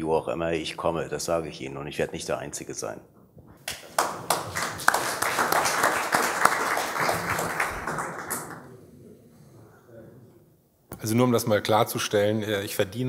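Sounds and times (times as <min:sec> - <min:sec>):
audience applauding: 0:03.7 - 0:08.8.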